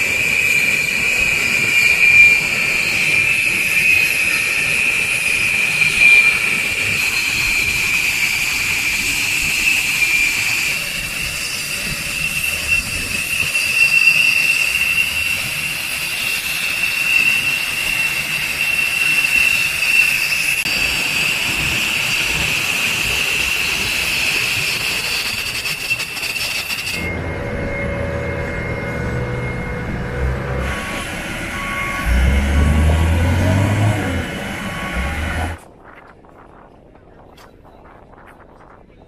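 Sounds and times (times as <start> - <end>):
jet turbine whine: 0.0 - 35.8
tow tractor engine: 25.6 - 35.6.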